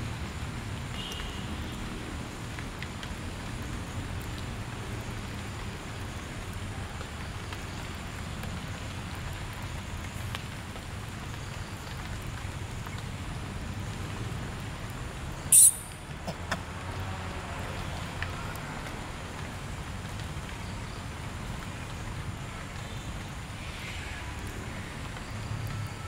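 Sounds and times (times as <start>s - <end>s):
light rain hissing: 0.0s - 26.0s
single raindrop ticks: 0.9s - 1.8s.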